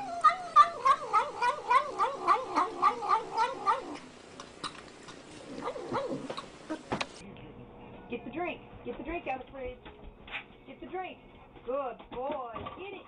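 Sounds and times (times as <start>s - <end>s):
cat mumbling: 0.0s - 4.1s, 5.1s - 6.9s.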